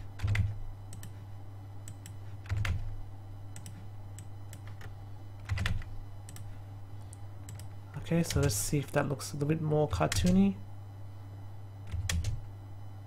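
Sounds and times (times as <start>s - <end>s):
steady low hum: 0.0s - 13.0s
heavy key presses: 0.2s - 1.1s, 1.9s - 2.9s, 3.6s - 6.5s, 11.8s - 12.4s
keyboard and mouse clicks: 3.6s - 8.5s.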